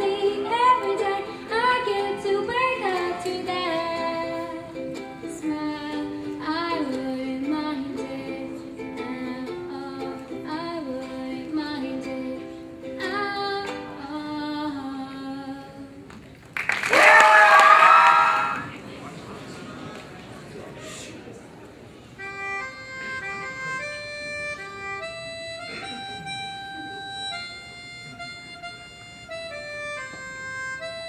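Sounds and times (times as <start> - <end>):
strummed ukulele: 0.0 - 14.7
girl singing: 0.0 - 16.0
audience cheering: 16.6 - 18.8.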